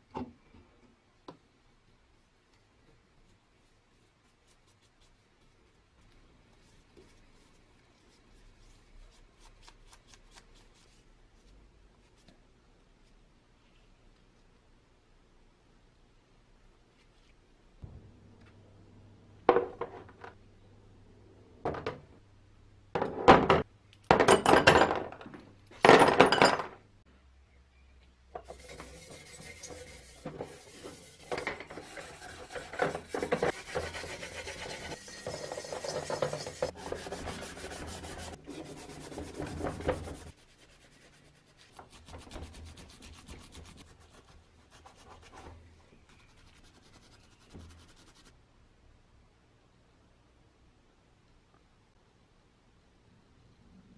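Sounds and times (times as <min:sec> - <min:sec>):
scouring pad scrubbing metal: 0:28.5 - 0:44.0.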